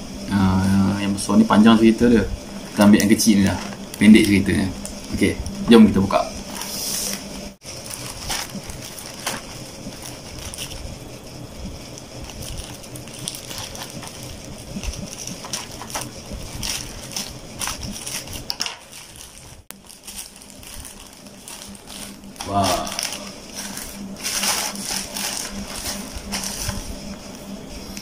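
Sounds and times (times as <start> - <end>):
plastic bag crinkling: 7.6 - 10.9, 11.9 - 27.2
plastic bag tearing: 7.7 - 10.8, 12.2 - 26.8.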